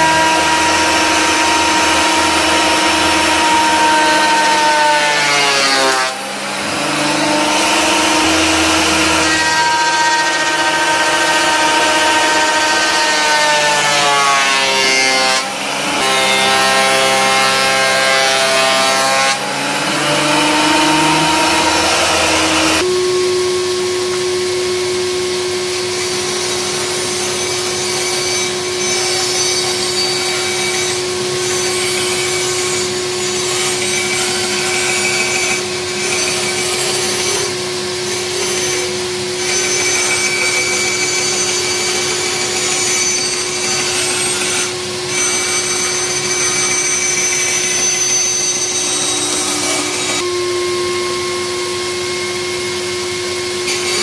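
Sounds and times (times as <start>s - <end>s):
thickness planer running: 0.0s - 29.7s, 47.4s - 54.0s.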